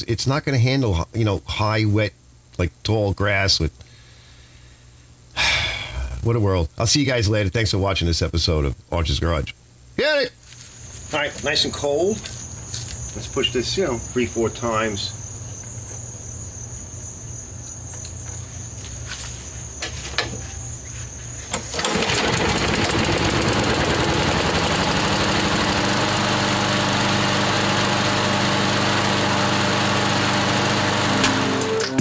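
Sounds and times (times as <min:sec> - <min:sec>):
lawn mower engine starting and running: 0:21.4 - 0:32.0.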